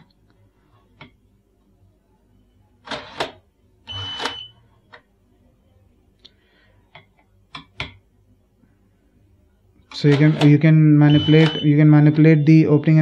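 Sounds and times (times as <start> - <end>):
short high-pitched beep: 11.1 - 12.7.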